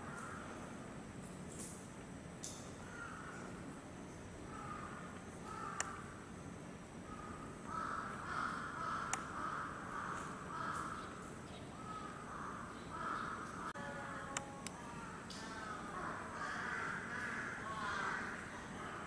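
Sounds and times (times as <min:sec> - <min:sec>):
bird cawing harshly: 0:02.8 - 0:03.5, 0:04.5 - 0:06.0, 0:07.1 - 0:11.0
sharp clicks: 0:09.1 - 0:09.3.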